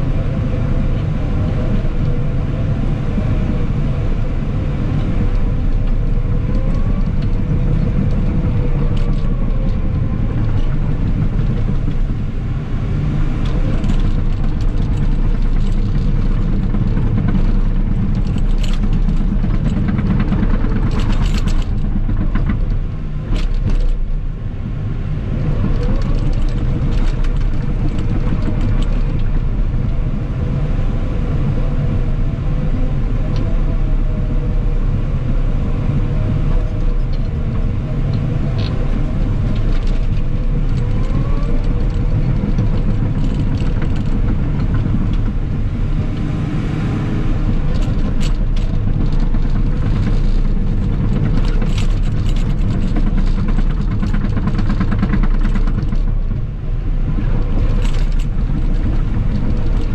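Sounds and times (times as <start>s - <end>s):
diesel engine rumbling: 0.0s - 59.9s.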